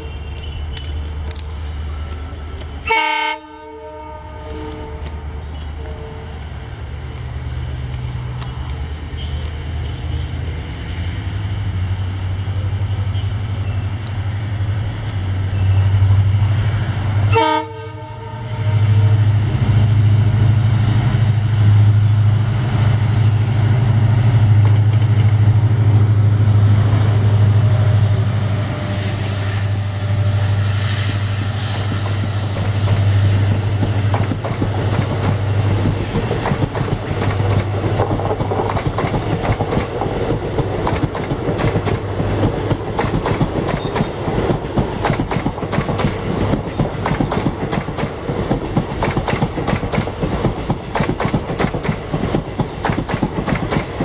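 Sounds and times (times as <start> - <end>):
diesel locomotive engine drone: 0.0 - 54.0
train horn blast: 2.8 - 6.4, 17.2 - 19.4.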